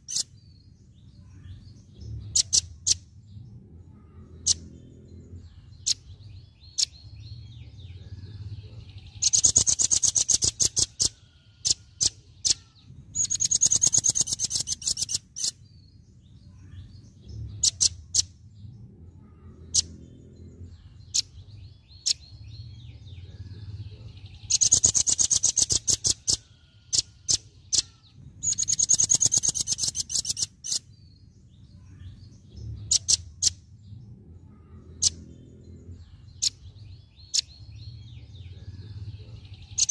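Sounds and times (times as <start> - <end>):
nuthatch rattling trills: 0.0 - 0.4, 2.2 - 3.1, 8.0 - 15.8, 17.4 - 18.4, 19.2 - 33.7, 34.5 - 39.9.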